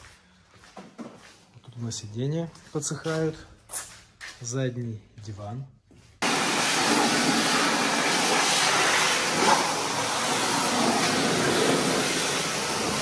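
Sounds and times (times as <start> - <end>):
pressure washer spray hissing: 6.2 - 13.0.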